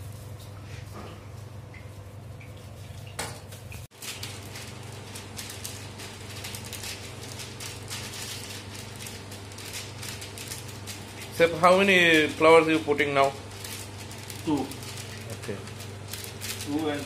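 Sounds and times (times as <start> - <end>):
plastic sheet crinkling: 3.9 - 17.0.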